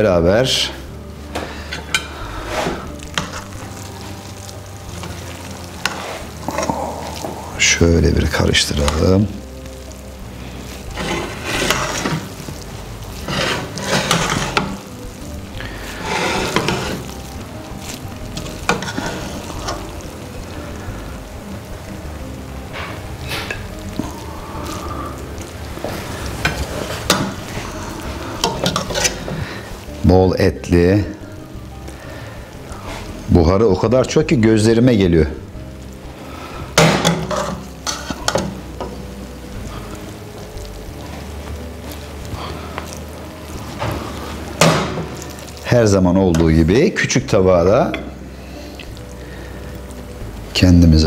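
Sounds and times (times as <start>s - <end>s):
spoons scraping rice from pot: 11.0s - 12.3s, 13.2s - 14.8s, 16.0s - 17.1s
spoon scraping rice in pot: 13.2s - 14.7s
utensils clinking on pot and plate: 36.8s - 39.0s.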